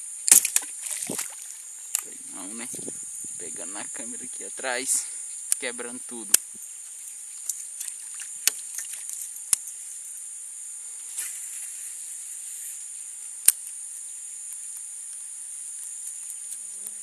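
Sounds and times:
high-pitched insect chorus: 0.0 - 17.0
sharp clicks: 6.3 - 6.6.

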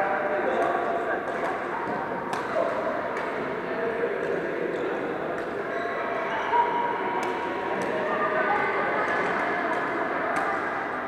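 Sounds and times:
racket hitting shuttlecock: 2.3 - 3.3.

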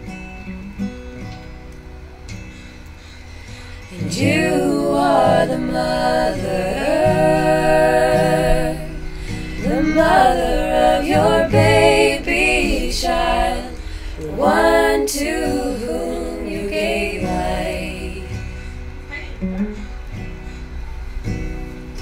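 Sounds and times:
women singing in harmony: 3.9 - 18.7.

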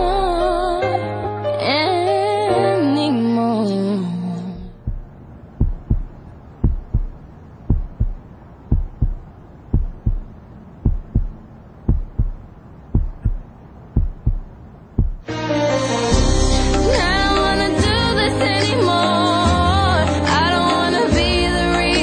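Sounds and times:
faint hum: 3.0 - 15.3
heartbeat thumps: 4.8 - 15.3.

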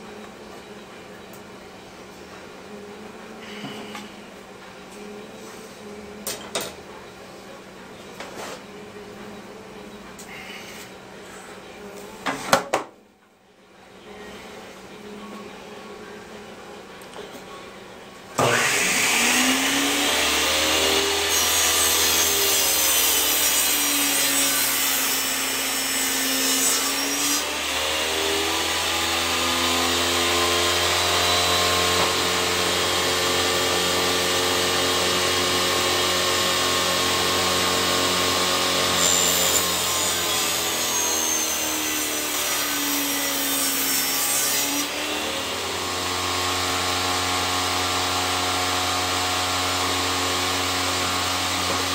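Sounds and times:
table saw motor running: 18.4 - 51.9.

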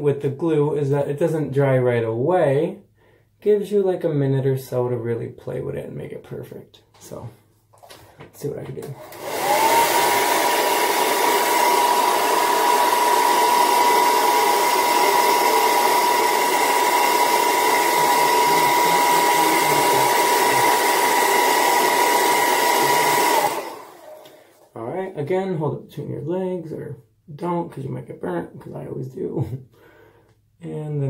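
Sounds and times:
hair dryer running: 8.8 - 24.7.

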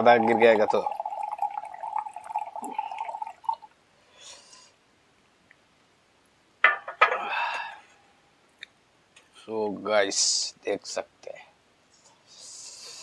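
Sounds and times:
liquid pouring into glass: 0.0 - 3.7
liquid dripping: 0.0 - 3.8.

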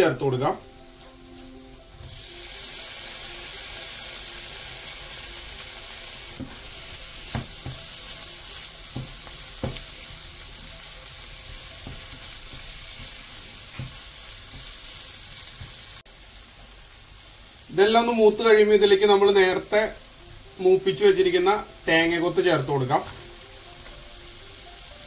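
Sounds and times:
tomatoes sizzling in oil: 0.0 - 25.0
spatula knocking against pan: 7.3 - 7.9, 8.9 - 10.0, 11.5 - 14.8.

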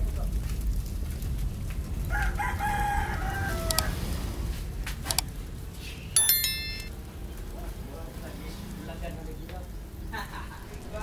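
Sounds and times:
rooster crowing: 2.1 - 4.1
sharp ringing clink: 6.2 - 6.9.

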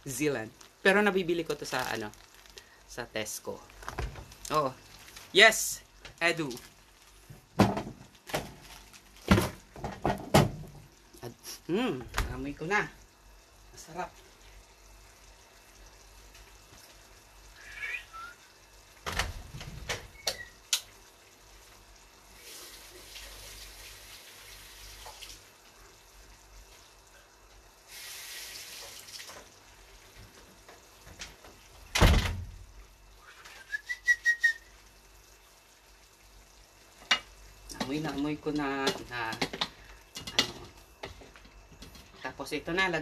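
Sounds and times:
whistled notes: 17.6 - 18.5, 33.2 - 34.7.

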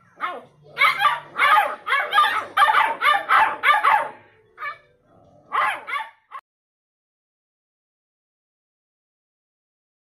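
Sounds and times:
puppies barking: 0.0 - 6.4.

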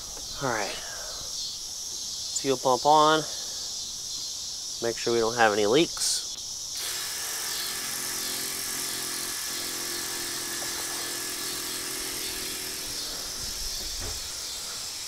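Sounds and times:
electric fuel pump whirring: 6.8 - 15.0.

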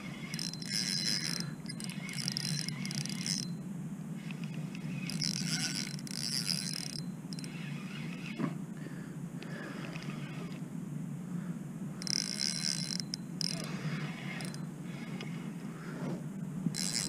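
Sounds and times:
spinning reel gears whirring: 0.0 - 3.6, 4.2 - 8.4, 12.0 - 15.6, 16.7 - 17.0.

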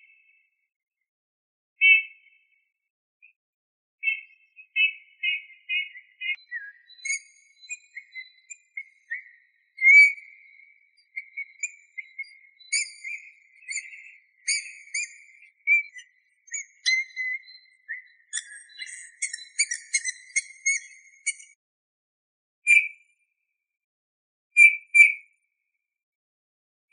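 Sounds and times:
bird piping whistles: 1.8 - 2.0, 4.0 - 21.5.

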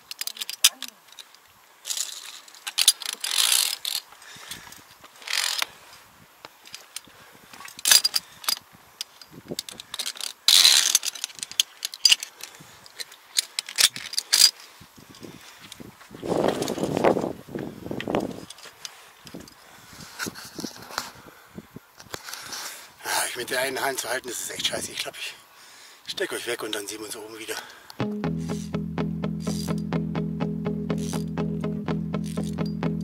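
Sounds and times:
carabiners clicking and scraping on cable: 0.0 - 5.7, 6.5 - 15.8, 18.0 - 21.0, 29.4 - 29.8, 30.9 - 31.3, 32.2 - 32.7.

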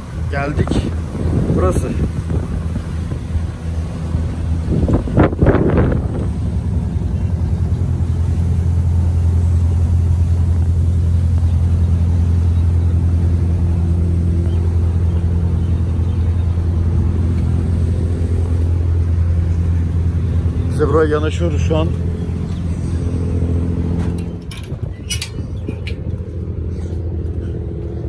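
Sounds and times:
boat engine droning: 0.0 - 28.0.

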